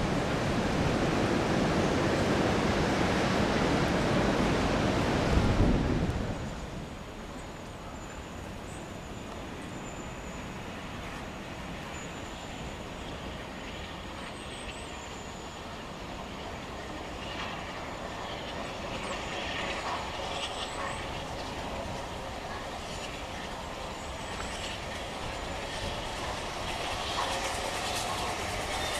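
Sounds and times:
distant steam train rumbling: 0.0s - 28.9s.

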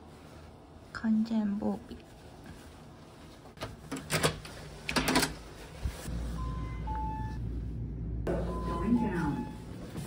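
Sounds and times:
steady low hum: 5.6s - 10.0s.

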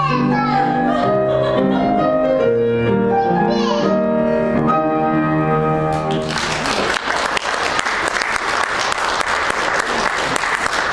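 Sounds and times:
audience applauding: 5.9s - 10.9s.

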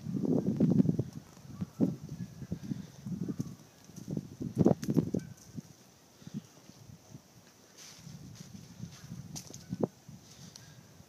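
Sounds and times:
footsteps crunching dry leaves: 7.7s - 10.5s.

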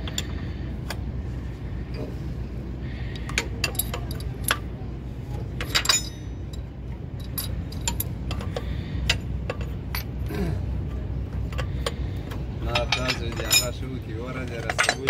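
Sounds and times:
steady low hum: 0.0s - 15.0s
spanner clinking on metal fittings: 3.2s - 4.7s, 5.6s - 10.2s, 11.5s - 15.0s.

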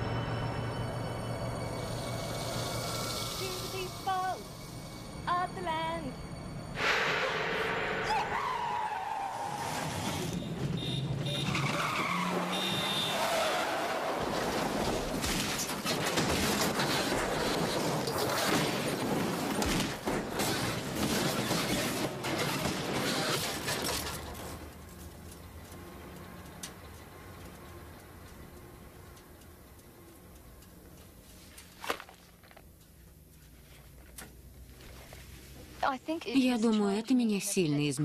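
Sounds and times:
car crashing and tumbling: 8.0s - 24.8s.

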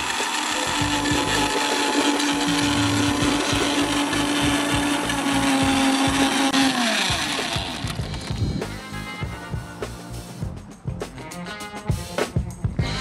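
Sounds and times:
electric blender running: 0.0s - 8.8s.

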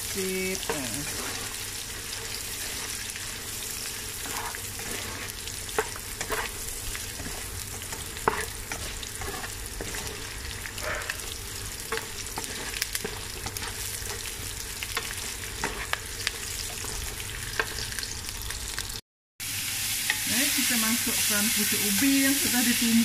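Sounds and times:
vegetables sizzling in oil: 0.0s - 23.0s
spatula scraping and knocking pan: 0.7s - 17.8s.

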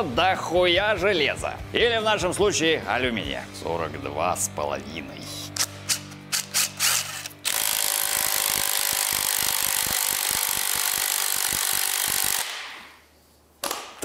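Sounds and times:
rapid ratcheting clicking: 5.9s - 12.5s
cordless drill running: 6.8s - 12.5s.

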